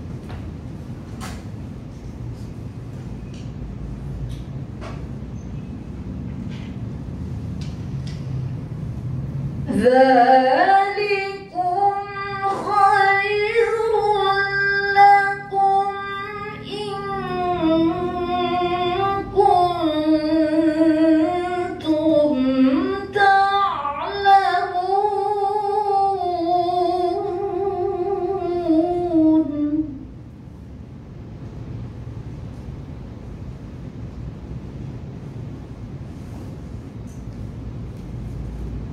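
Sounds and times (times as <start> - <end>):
woman reciting melodically: 9.6 - 30.3.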